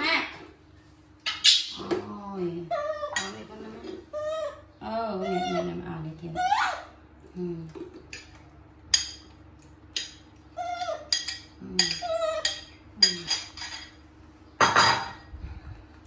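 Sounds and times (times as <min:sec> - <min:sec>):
faint steady hum: 0:00.0 - 0:16.0
metal spoon clinking on ceramic: 0:11.1 - 0:14.0.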